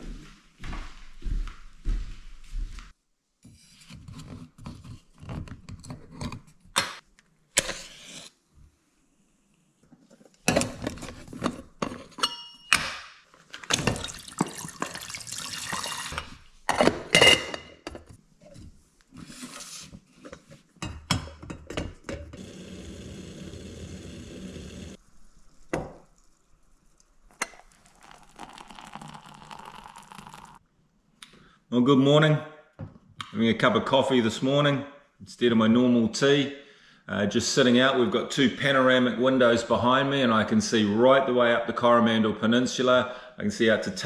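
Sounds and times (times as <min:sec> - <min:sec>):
metal cookware clinking: 0:11.8 - 0:12.8
water being poured: 0:13.7 - 0:16.4, 0:25.0 - 0:30.6.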